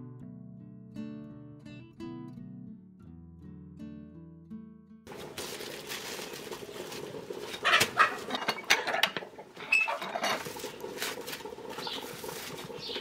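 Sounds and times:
plastic crinkling: 5.1 - 8.3
tortilla press clacking: 7.0 - 13.0.

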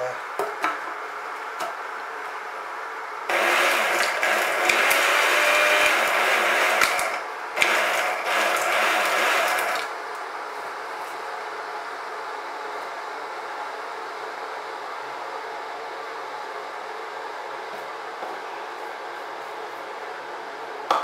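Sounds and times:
electric grinder grinding: 3.3 - 9.9.

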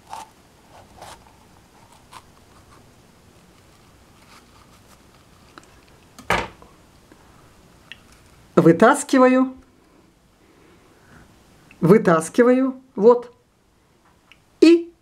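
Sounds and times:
knife crunching through pepper: 0.0 - 2.8.

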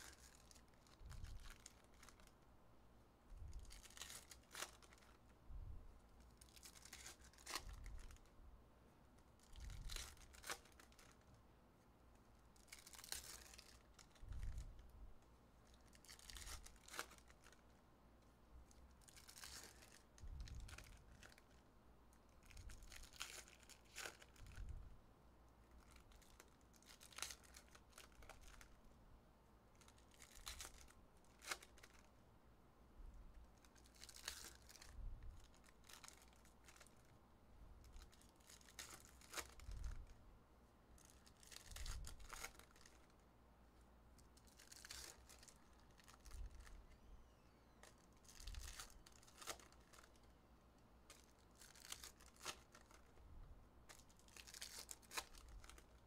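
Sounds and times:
foil wrappers tearing and crinkling: 9.5 - 11.2, 12.6 - 14.2, 16.0 - 17.6, 19.0 - 21.4, 25.8 - 28.7, 33.8 - 34.9, 41.0 - 43.1, 44.4 - 46.7, 47.8 - 50.2, 51.1 - 53.2, 53.9 - 56.0.

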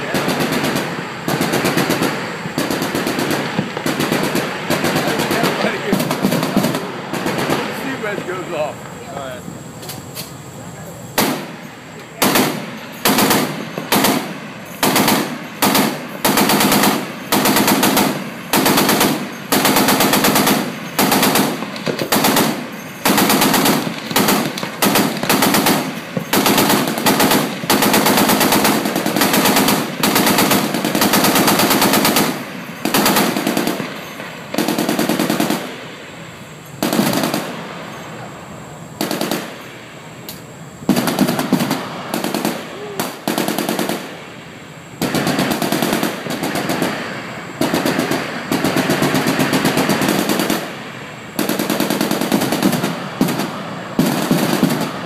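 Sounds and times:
machine gun bursts: 0.0 - 8.2, 12.2 - 35.7, 36.8 - 37.5, 45.0 - 50.7.

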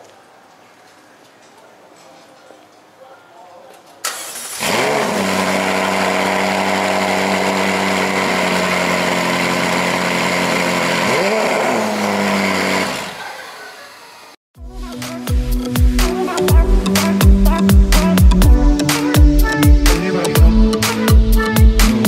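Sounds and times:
sports car engine starting and idling: 4.0 - 13.9.

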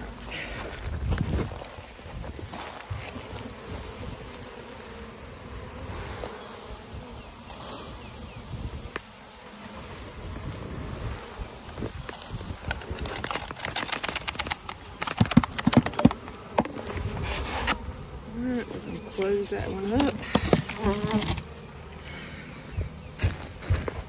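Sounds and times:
bees buzzing: 0.0 - 24.0
plastic boxes clicking and knocking: 12.6 - 16.8, 20.0 - 21.4.

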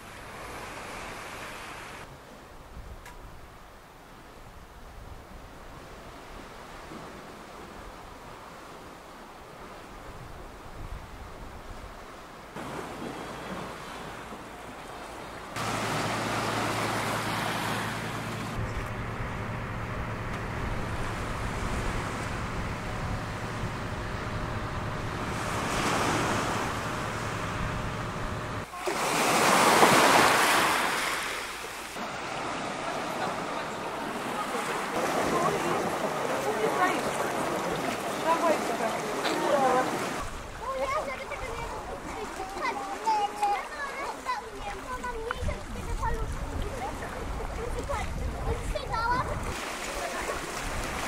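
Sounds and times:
waves washing on pebble beach: 15.5 - 18.4, 28.6 - 41.2, 49.5 - 51.0.

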